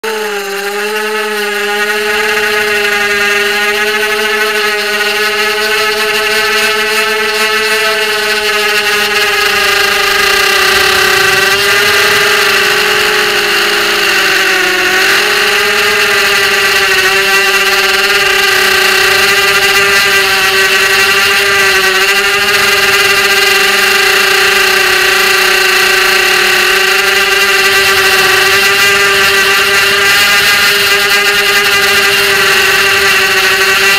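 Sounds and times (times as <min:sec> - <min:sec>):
drone motors whining: 0:00.0 - 0:33.9.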